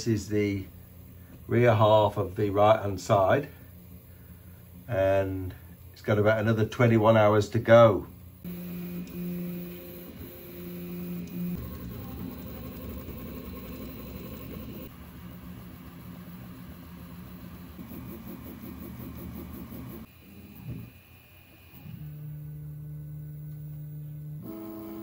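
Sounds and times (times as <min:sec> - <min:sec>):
printer stepper motors whining: 0:08.4 - 0:22.8, 0:23.9 - 0:25.0.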